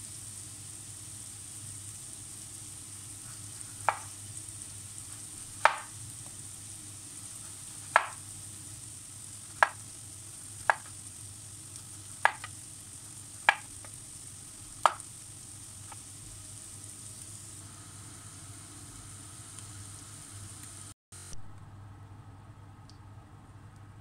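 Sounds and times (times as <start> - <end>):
knife knocking on cutting board: 3.8 - 4.1, 5.6 - 5.9, 7.9 - 8.2, 12.2 - 12.5.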